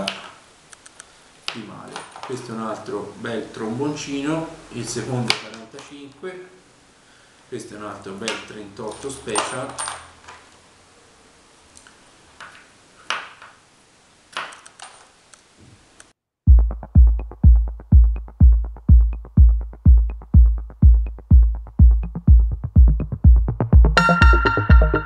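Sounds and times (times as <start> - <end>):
electronic music with kick drum: 16.5 - 25.0.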